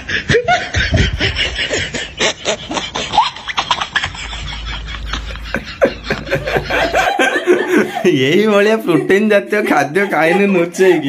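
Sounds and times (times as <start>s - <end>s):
low hum: 0.1s - 7.8s.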